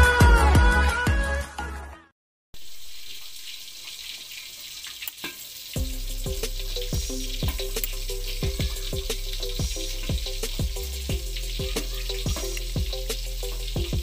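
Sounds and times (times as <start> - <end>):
background music with beat: 0.0 - 2.1, 5.8 - 14.0
fish sizzling in liquid: 2.6 - 14.0.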